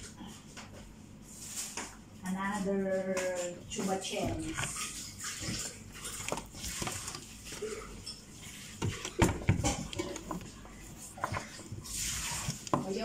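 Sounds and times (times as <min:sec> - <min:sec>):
kitchenware knocks and clinks: 0:08.8 - 0:10.5.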